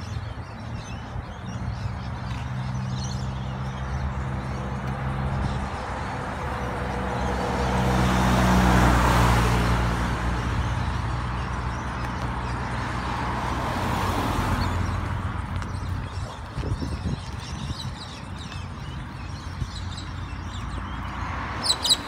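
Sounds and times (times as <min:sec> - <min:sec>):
tyre and road noise: 0:00.0 - 0:22.0.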